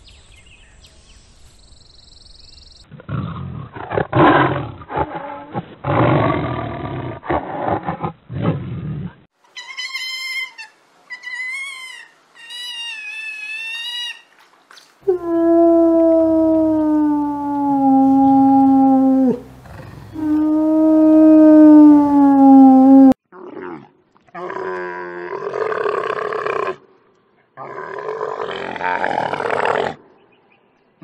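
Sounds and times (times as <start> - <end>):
wolf howling: 15.1 - 23.2.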